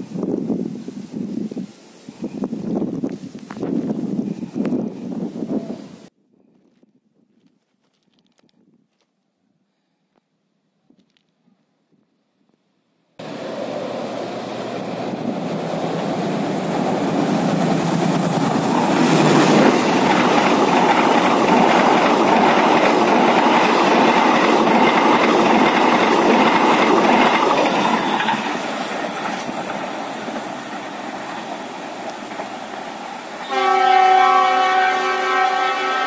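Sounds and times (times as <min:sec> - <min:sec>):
train wheels rumbling and clattering: 0:14.2 - 0:33.5.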